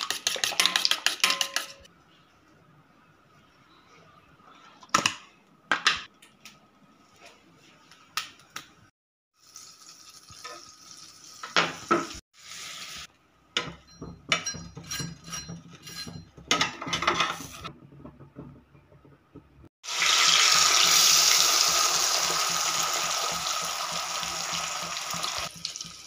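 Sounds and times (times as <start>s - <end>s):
metal spatula scraping grill pan: 14.4s - 17.7s.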